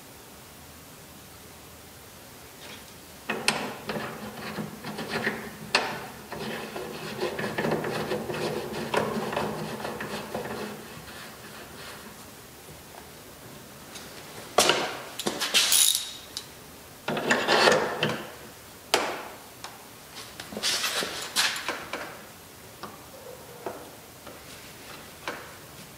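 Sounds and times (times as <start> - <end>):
metal rubbing and scraping: 3.8 - 12.2.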